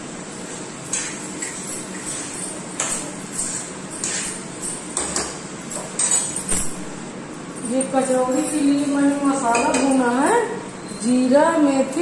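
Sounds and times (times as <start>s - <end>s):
metal spoon scraping a pan: 0.9s - 5.2s.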